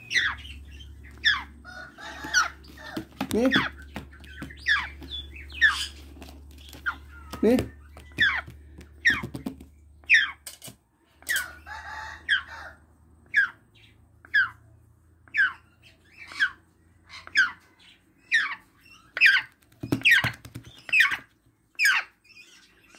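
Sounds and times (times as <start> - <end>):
parrot squawking: 0.0 - 6.0, 14.2 - 14.6, 15.3 - 17.6.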